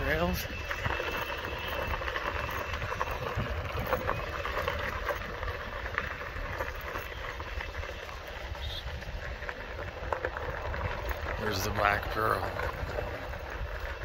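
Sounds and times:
tyres rolling over gravel: 0.0s - 14.0s
wind rumble on microphone: 0.0s - 14.0s.

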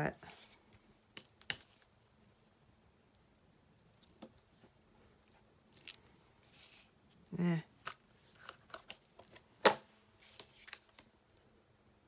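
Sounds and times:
soft rustle: 0.1s - 1.0s, 3.9s - 7.2s.

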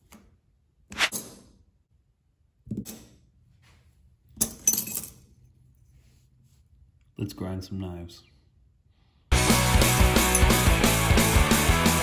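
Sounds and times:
small metal parts clinking: 4.4s - 5.5s.

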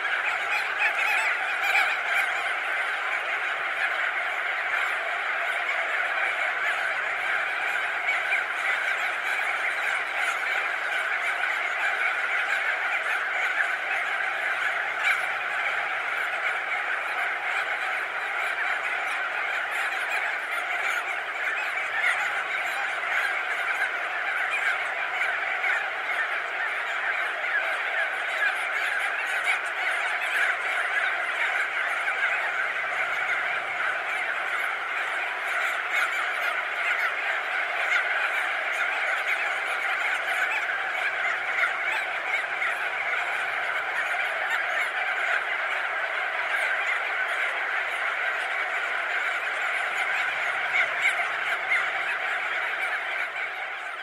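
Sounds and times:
seabird colony calling: 0.0s - 54.0s.

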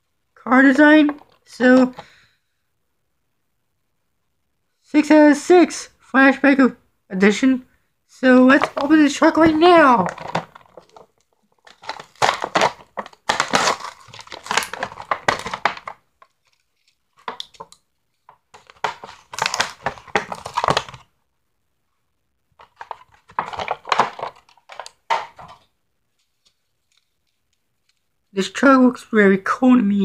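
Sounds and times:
plastic packaging tearing and crackling: 8.6s - 21.1s, 22.6s - 25.6s.

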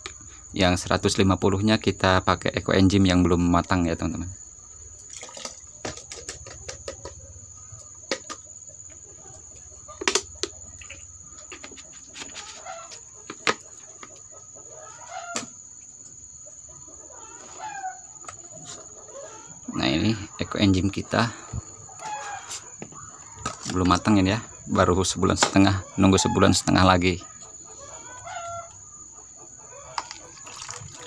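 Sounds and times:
plastic bottles and glass jar knocking: 5.3s - 7.2s, 8.0s - 8.5s, 13.2s - 14.2s, 30.0s - 31.0s
chickens clucking: 5.7s - 31.0s.

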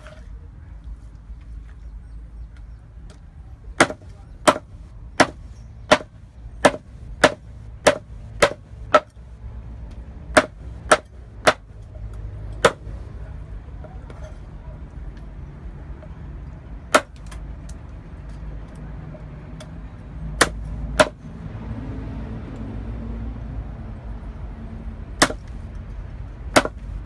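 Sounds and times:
cleaver chopping on wooden block: 3.8s - 9.2s, 10.3s - 11.7s, 12.6s - 12.9s, 16.9s - 17.4s, 20.4s - 21.2s, 25.2s - 25.6s, 26.5s - 26.9s.

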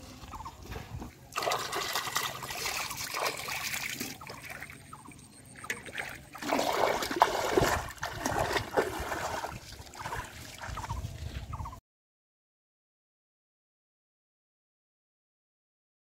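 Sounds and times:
splashing in shallow water: 0.0s - 11.7s.

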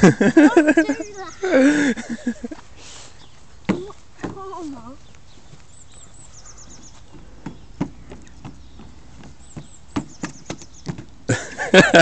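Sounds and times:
faint bird chirps: 0.8s - 1.7s, 3.0s - 11.1s
footsteps on trampoline rim: 3.3s - 11.2s
person speaking: 3.7s - 5.0s.

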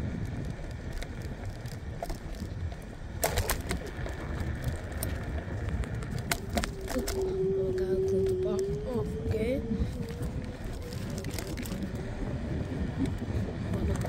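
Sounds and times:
scooter road rumble: 0.0s - 14.0s
wind buffeting microphone: 0.0s - 14.0s
sharp clicks or rattles: 3.2s - 7.2s.

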